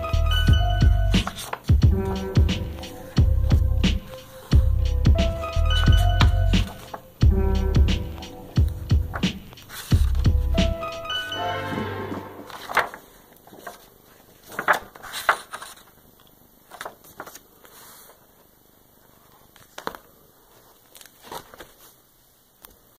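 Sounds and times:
paper pages rustling: 1.2s - 4.6s, 5.7s - 7.2s, 8.1s - 11.1s, 12.4s - 22.8s.

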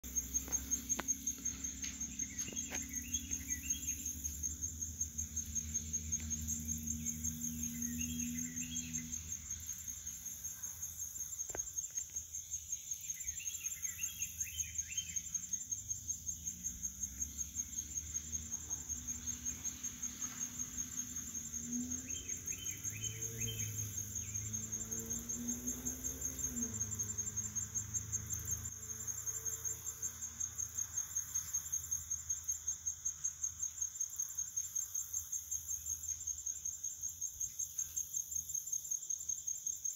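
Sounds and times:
insects chorus: 0.0s - 39.9s
bird chirps: 2.0s - 4.2s, 7.2s - 9.2s, 22.0s - 24.4s.

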